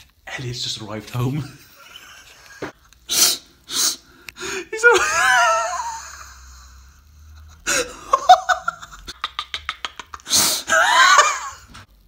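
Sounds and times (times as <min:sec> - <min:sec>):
man laughing: 0:01.4 - 0:02.8, 0:04.8 - 0:11.8.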